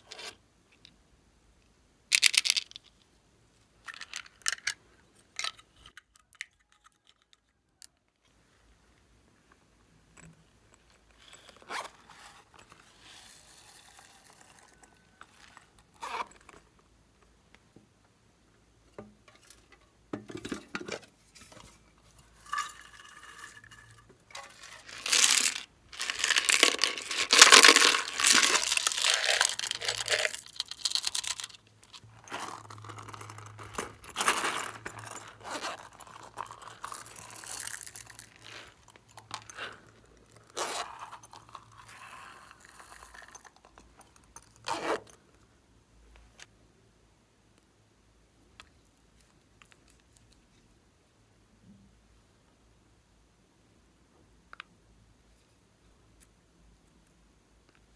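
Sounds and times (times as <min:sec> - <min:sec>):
small beads rattling and pattering: 0:02.1 - 0:02.9, 0:22.4 - 0:43.8.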